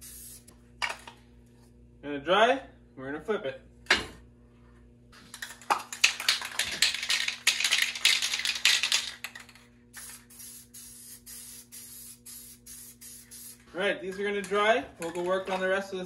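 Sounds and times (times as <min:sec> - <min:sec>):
spray paint can hissing: 0:00.0 - 0:00.5, 0:09.9 - 0:13.7.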